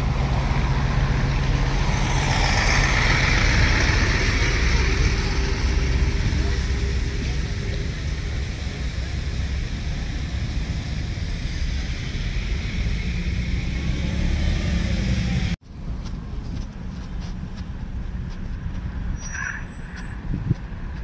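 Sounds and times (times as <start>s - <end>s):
cars passing rumble: 0.0s - 21.0s.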